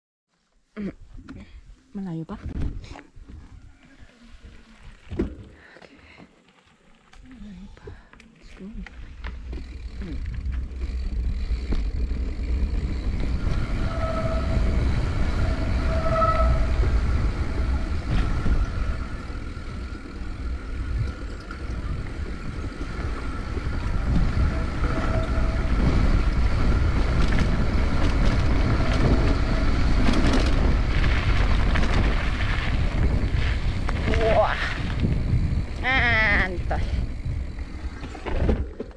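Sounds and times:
rumble of riding on rough road: 2.4s - 38.9s
wind buffeting the microphone: 9.3s - 38.8s.

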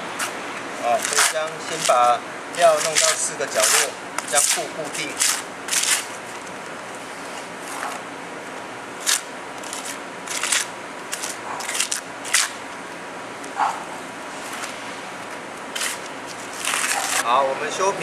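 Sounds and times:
steady background hiss: 0.0s - 18.0s
trowel scraping mortar: 0.9s - 2.0s, 2.6s - 6.1s, 15.8s - 17.2s.

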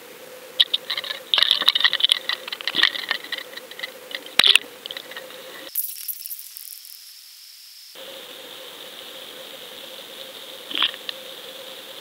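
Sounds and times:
fishing tackle rattling and clicking: 0.7s - 6.8s.

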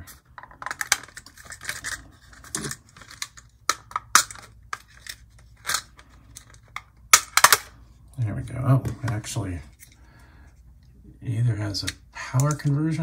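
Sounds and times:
plastic clicking and scraping: 0.4s - 7.6s.

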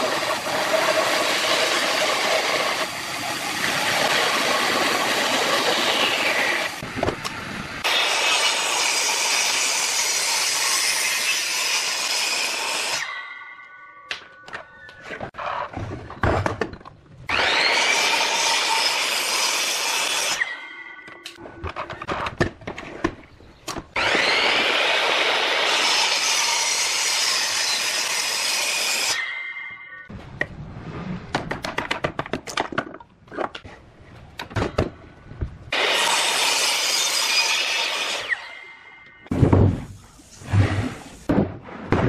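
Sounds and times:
miter saw cutting wood: 0.0s - 6.8s, 7.8s - 13.2s, 17.3s - 20.7s, 24.0s - 29.3s, 35.7s - 38.8s.

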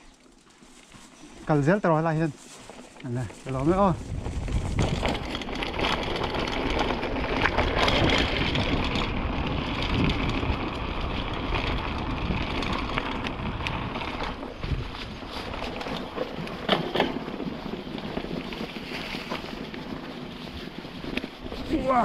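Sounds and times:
bike knocks and rattles: 2.5s - 22.0s
wind buffeting microphone: 3.1s - 22.0s.

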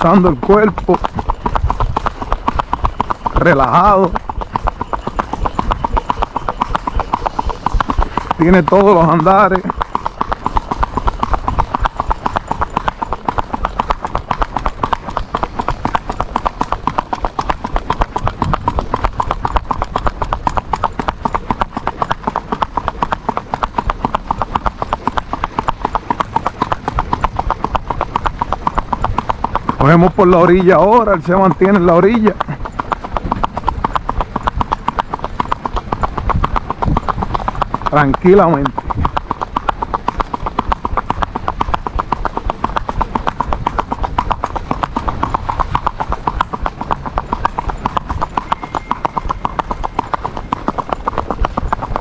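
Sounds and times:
horse hooves on asphalt: 0.0s - 52.0s.

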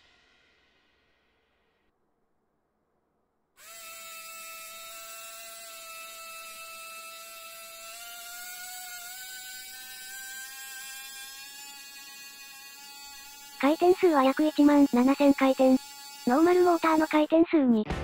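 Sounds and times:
small electric motor whining: 3.6s - 17.4s.

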